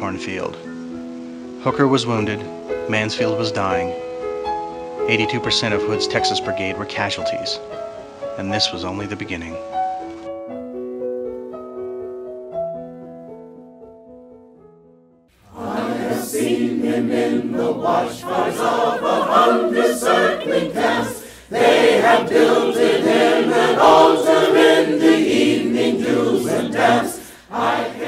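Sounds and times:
choir singing: 0:15.4 - 0:28.0.

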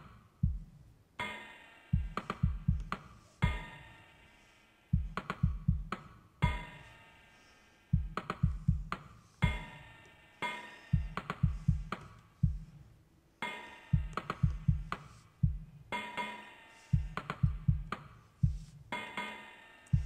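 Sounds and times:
kick drum thumps: 0:00.4 - 0:00.7, 0:02.0 - 0:03.7, 0:05.0 - 0:06.7, 0:08.0 - 0:09.7, 0:11.0 - 0:12.7, 0:14.0 - 0:15.7, 0:17.0 - 0:18.7.

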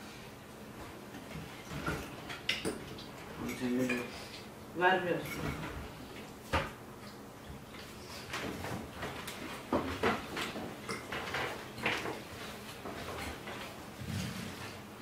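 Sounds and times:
cutlery clinking on plates: 0:01.7 - 0:04.1.

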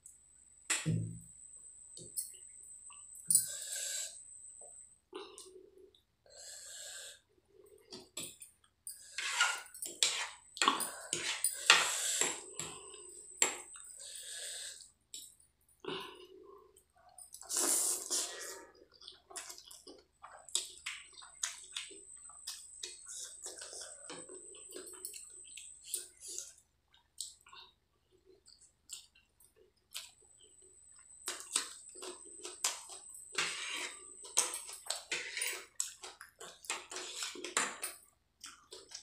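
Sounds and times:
wet squishing of noodles: 0:16.7 - 0:39.0
chewing and lip-smacking: 0:18.8 - 0:33.1.

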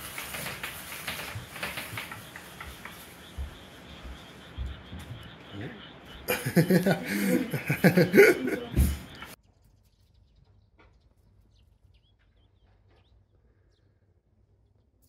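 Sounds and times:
person speaking: 0:05.6 - 0:09.4.

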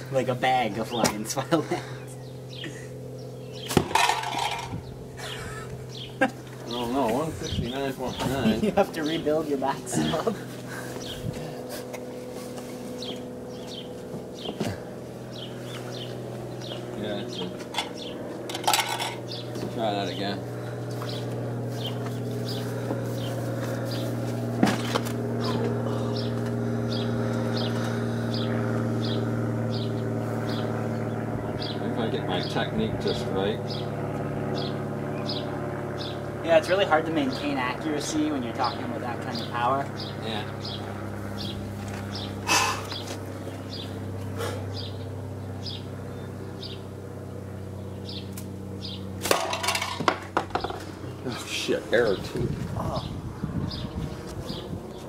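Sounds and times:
steady low hum: 0:00.0 - 0:55.0
bird chirping: 0:01.8 - 0:03.8, 0:04.7 - 0:08.6, 0:12.9 - 0:14.6, 0:15.3 - 0:18.3, 0:38.7 - 0:46.9, 0:47.7 - 0:49.1
slingshot smack: 0:03.7 - 0:03.9.

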